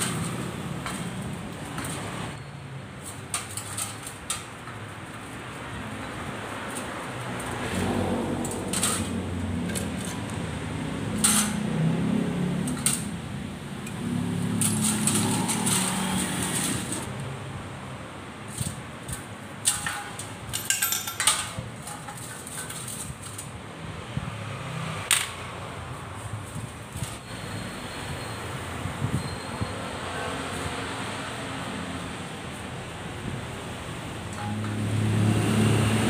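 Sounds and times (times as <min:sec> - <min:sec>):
metal parts clinking in a basin: 0:03.0 - 0:04.8, 0:08.4 - 0:10.3, 0:11.1 - 0:11.7, 0:12.6 - 0:13.2, 0:14.5 - 0:17.1, 0:18.5 - 0:23.5, 0:34.3 - 0:34.8.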